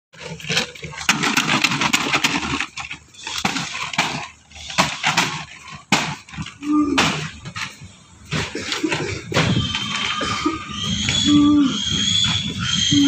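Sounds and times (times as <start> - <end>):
pigs grunting and squealing: 8.4 - 13.0.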